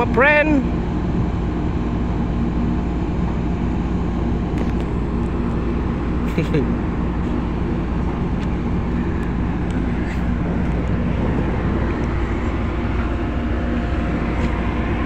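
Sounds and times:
diesel engines droning: 0.0s - 15.0s.

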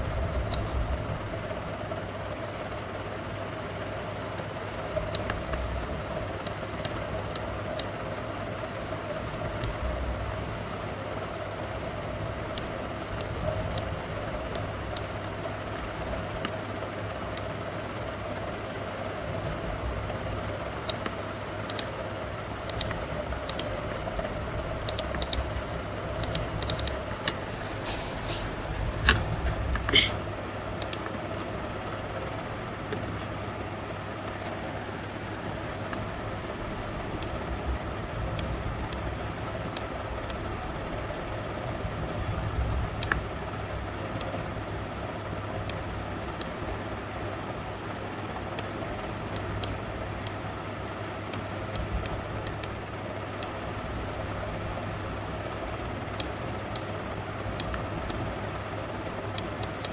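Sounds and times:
background hum: 0.0s - 59.9s
computer mouse and key clicks: 5.0s - 5.6s, 6.4s - 7.9s, 9.6s - 9.8s, 12.5s - 13.9s, 20.4s - 22.0s, 22.6s - 27.4s, 30.8s - 31.5s, 43.0s - 43.2s, 44.1s - 44.4s, 49.3s - 50.4s, 51.3s - 52.8s, 56.1s - 58.2s, 59.3s - 59.9s.

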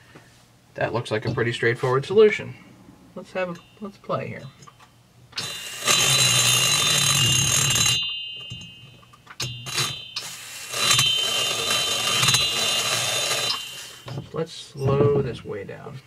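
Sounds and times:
burr grinding metal: 4.6s - 15.4s
high-pitched rotary tool whine: 5.4s - 8.0s, 9.6s - 14.2s.

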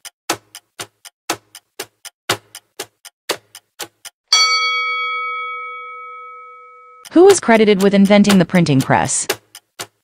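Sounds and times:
clock ticking: 0.0s - 10.0s
chime ringing: 4.3s - 7.1s.

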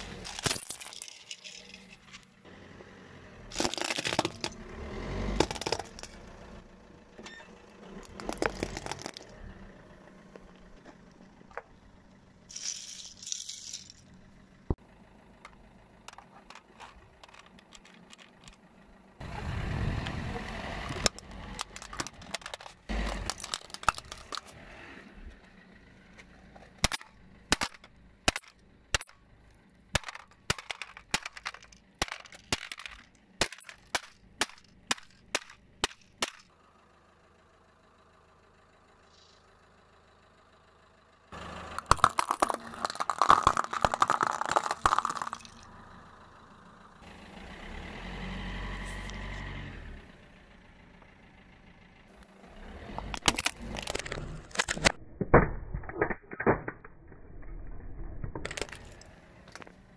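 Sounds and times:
seashells crunching under tyre: 0.0s - 2.2s, 3.5s - 4.6s, 8.0s - 9.4s, 20.8s - 24.6s, 41.6s - 45.7s, 53.0s - 55.0s, 58.4s - 59.8s
plastic toy car crunching: 0.0s - 2.3s, 3.5s - 4.6s, 5.3s - 6.2s, 8.0s - 9.4s, 20.9s - 24.6s, 26.8s - 29.2s, 30.0s - 36.4s, 41.4s - 45.7s, 53.0s - 59.8s
low rumble: 16.1s - 26.2s
hammer cracking plastic toy: 26.8s - 29.2s, 30.0s - 36.4s, 41.8s - 45.6s.

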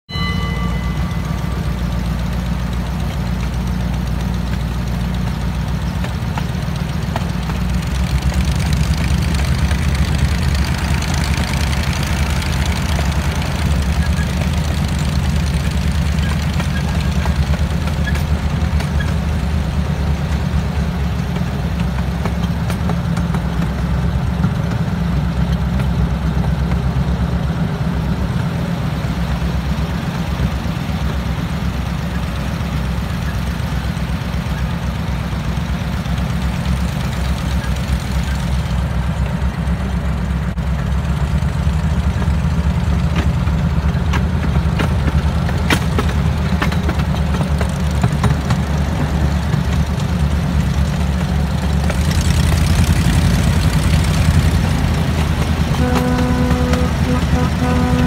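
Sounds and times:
miniature train engine drone: 0.1s - 58.0s
rumble of train cars: 0.1s - 58.0s.

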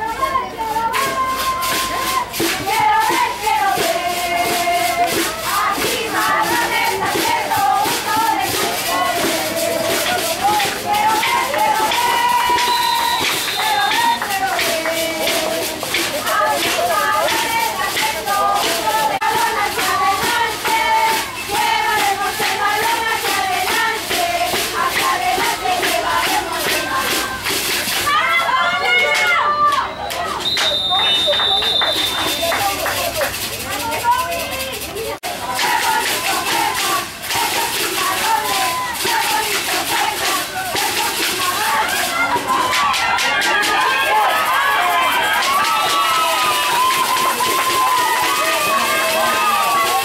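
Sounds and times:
choir singing held notes: 0.0s - 29.4s, 35.3s - 50.0s
young voices cheering: 8.1s - 17.6s, 28.0s - 33.0s, 38.3s - 39.0s, 41.4s - 50.0s.

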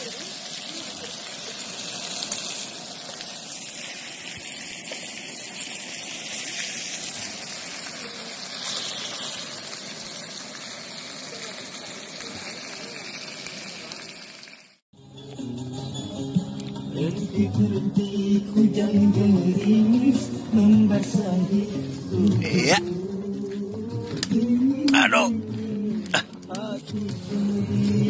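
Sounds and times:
food sizzling on griddle: 0.0s - 14.8s, 18.0s - 22.8s, 26.6s - 28.0s.

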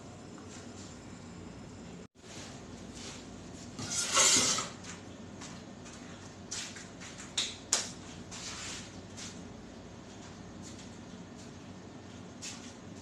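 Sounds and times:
dough scraping on steel table: 3.7s - 4.8s.

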